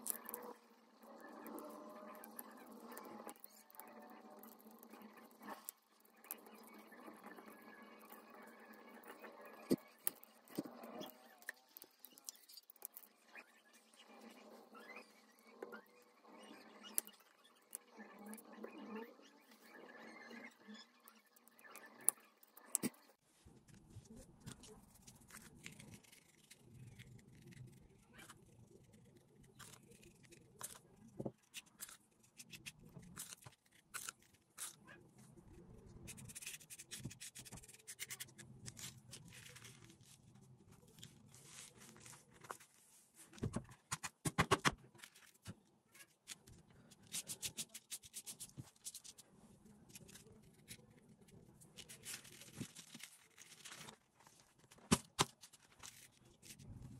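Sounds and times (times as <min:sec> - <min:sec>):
toothpick scratching: 0:25.3 - 0:34.8.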